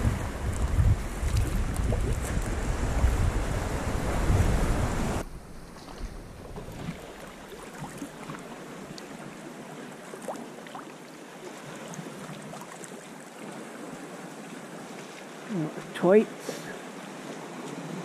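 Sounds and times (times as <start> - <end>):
faint steady wash: 0.0 - 18.0
water lapping: 0.0 - 18.0
small splashes: 5.7 - 9.3, 10.0 - 13.6.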